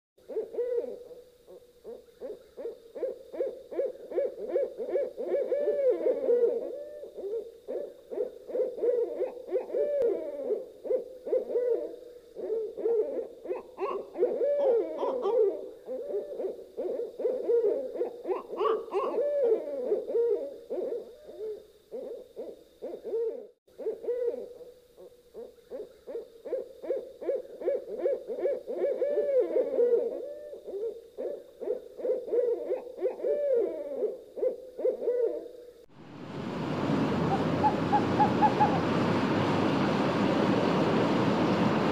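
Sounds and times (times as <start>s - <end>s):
owls hooting: 0.2s - 39.8s.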